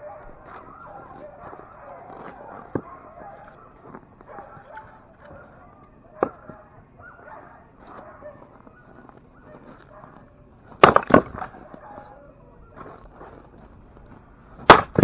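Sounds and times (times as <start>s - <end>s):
axe cracking into log: 10.8s - 11.5s, 14.6s - 15.0s.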